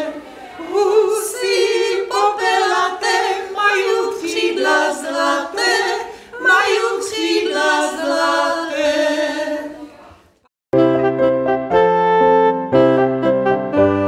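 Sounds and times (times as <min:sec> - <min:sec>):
a cappella choir singing: 0:00.0 - 0:10.1.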